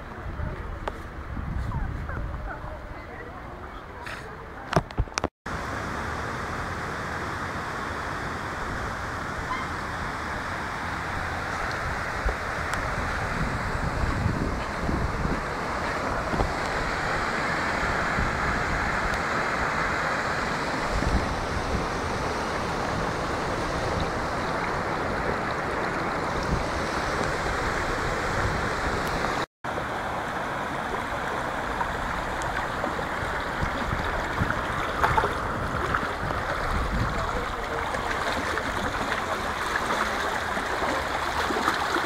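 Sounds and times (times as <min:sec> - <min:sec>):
wind buffeting microphone: 0:00.0 - 0:03.8, 0:08.5 - 0:29.4, 0:31.5 - 0:41.9
floodwater rushing: 0:05.5 - 0:42.0
footsteps splashing through water: 0:31.8 - 0:42.0.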